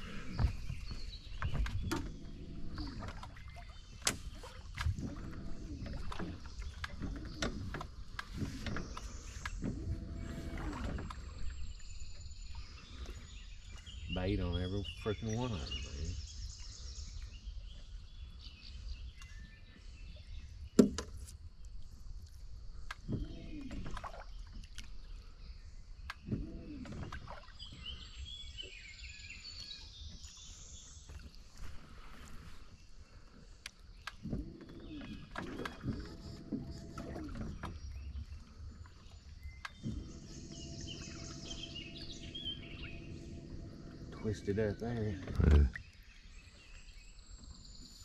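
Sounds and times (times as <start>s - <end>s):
boat motor idling: 0.0s - 3.4s, 4.1s - 14.4s, 34.3s - 38.1s, 39.6s - 45.8s
birds chirping: 0.0s - 20.8s, 22.7s - 48.0s.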